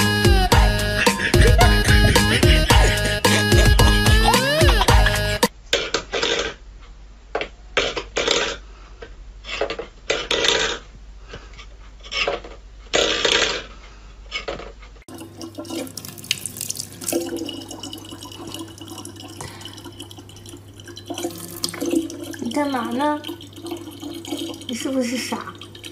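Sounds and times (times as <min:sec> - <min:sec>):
tap water running into plastic bottle: 0:15.1 - 0:25.9.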